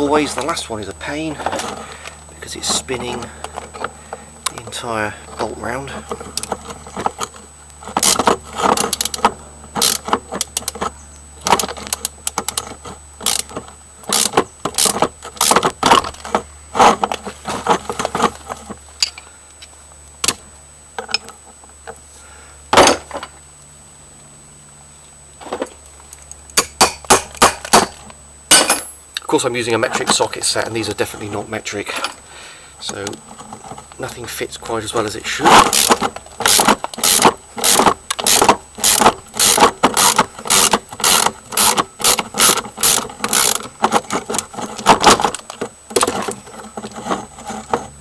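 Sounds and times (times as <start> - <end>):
wrench clanking on metal bolts: 26.6 - 29.1, 35.5 - 47.2.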